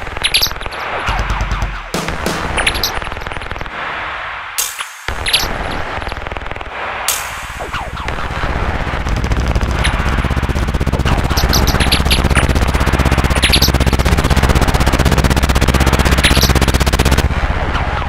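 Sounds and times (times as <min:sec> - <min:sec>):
harsh rapid rattling: 0:09.6 - 0:17.2.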